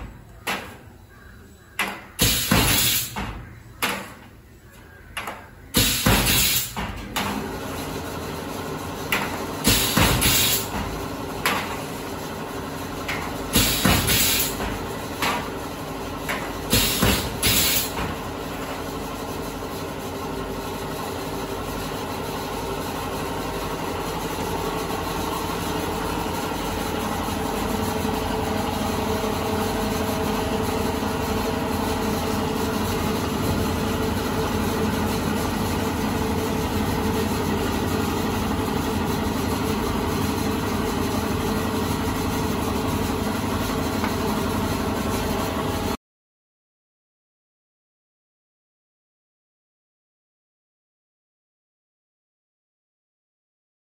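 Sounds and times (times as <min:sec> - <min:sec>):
steady machine hum: 0:00.0 - 0:46.0
air hissing bursts: 0:02.2 - 0:03.2, 0:05.8 - 0:06.8, 0:09.6 - 0:10.7, 0:13.6 - 0:14.6, 0:16.7 - 0:18.0.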